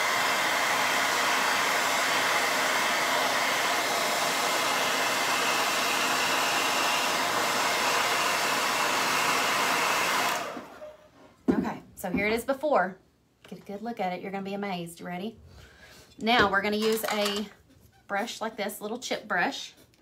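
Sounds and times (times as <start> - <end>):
hair dryer blowing: 0.0 - 11.0.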